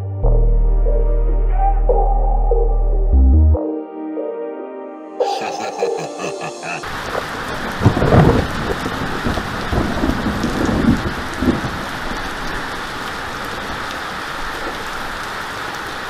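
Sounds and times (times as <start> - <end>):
heavy rain on pavement: 6.8 - 16.0.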